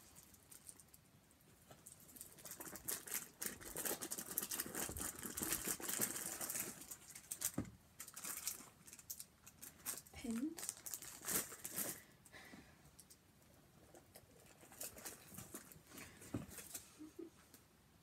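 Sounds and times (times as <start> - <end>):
packaging crinkling and rustling: 1.7 - 12.1, 13.9 - 16.9.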